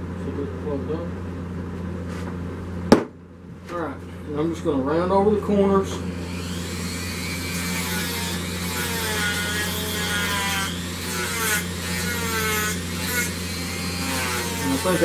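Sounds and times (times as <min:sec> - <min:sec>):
rotary tool sanding wood: 0:06.2 - 0:15.0.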